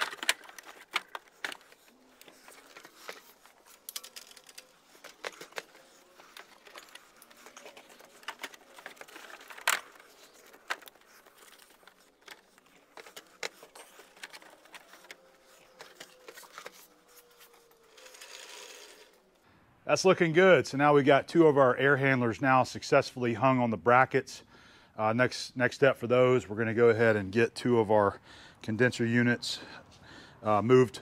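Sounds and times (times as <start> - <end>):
light clicks and knocks of handling: 0.0 - 18.8.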